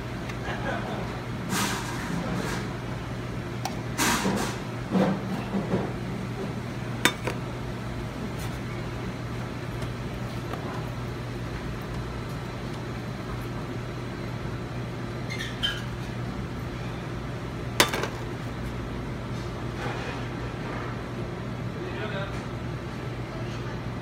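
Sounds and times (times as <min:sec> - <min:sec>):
steady low hum: 0:00.0 - 0:15.1
kitchenware clinking: 0:07.1 - 0:07.4, 0:17.8 - 0:18.2.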